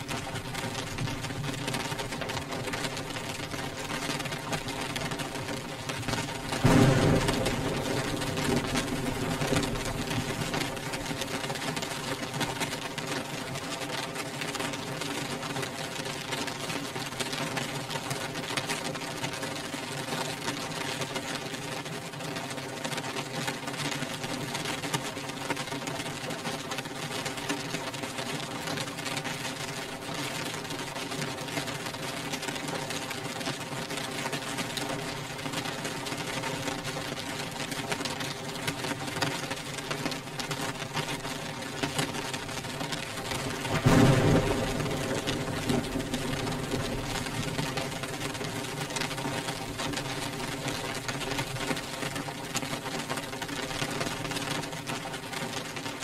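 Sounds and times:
rain on window glass: 0.0s - 56.0s.

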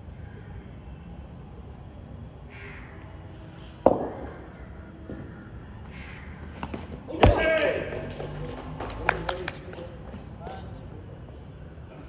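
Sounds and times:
steady low hum: 0.0s - 9.0s
cricket bat knock: 3.8s - 4.3s, 6.6s - 8.0s.

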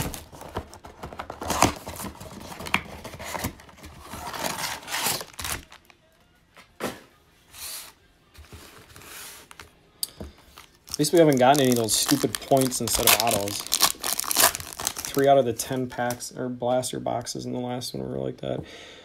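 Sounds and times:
cardboard box tearing: 0.0s - 5.8s, 11.0s - 15.1s
packs rustling: 0.0s - 5.9s, 10.3s - 15.4s
foil packs crinkling: 0.0s - 6.0s, 10.4s - 15.4s.

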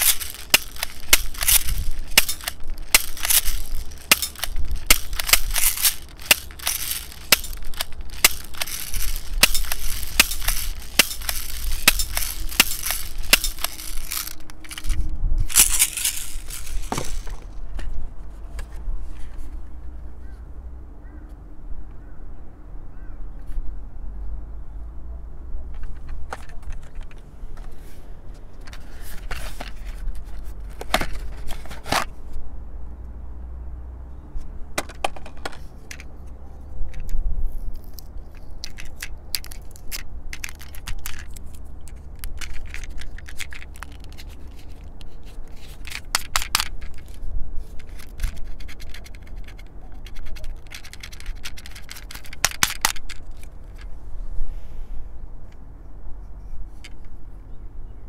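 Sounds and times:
toy revolver clicks and rattles: 0.0s - 17.5s, 35.2s - 36.1s, 36.9s - 53.9s
steady low rumble: 0.0s - 20.1s.

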